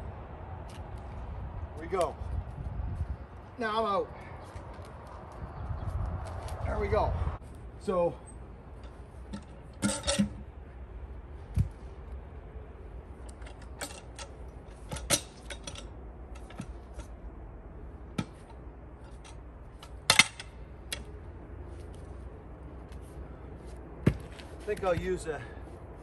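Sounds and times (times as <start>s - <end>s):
metal hook clunking on logs: 8.8s - 10.6s, 13.2s - 17.2s, 18.1s - 21.1s
boots knocking on logs: 23.6s - 25.5s.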